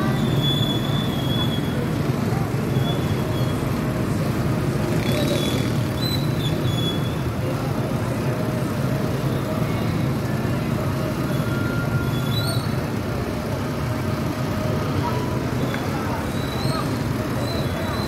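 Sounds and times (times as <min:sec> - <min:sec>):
street traffic rumble: 0:00.0 - 0:18.0.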